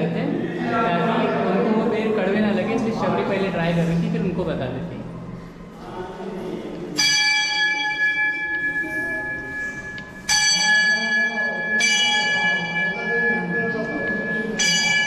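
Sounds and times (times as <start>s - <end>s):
temple bell ringing: 7.0s - 15.0s.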